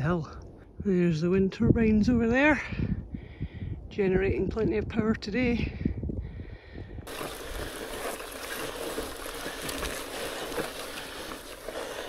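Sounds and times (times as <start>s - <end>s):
bike tyres rolling through mud: 7.1s - 12.0s.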